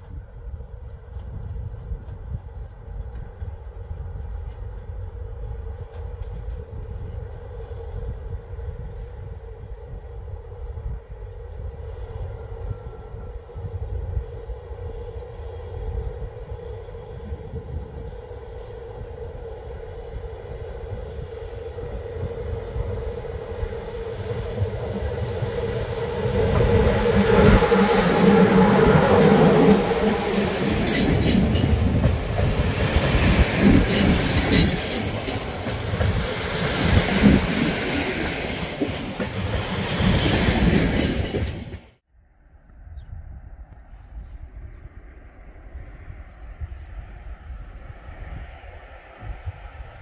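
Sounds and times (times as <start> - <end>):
train passing: 0.0 - 42.0
train wheels knocking on rail joints: 26.2 - 41.9.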